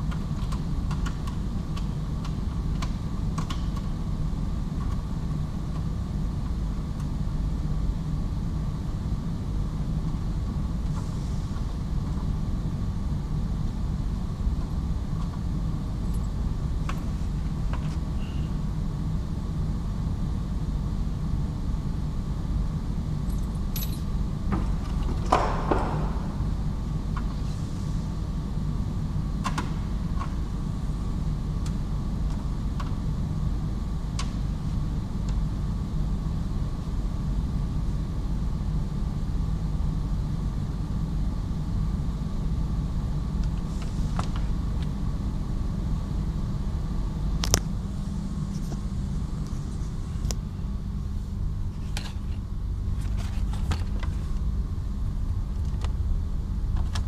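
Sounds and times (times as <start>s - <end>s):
workshop background rumble: 9.2s - 36.0s, 43.2s - 57.0s.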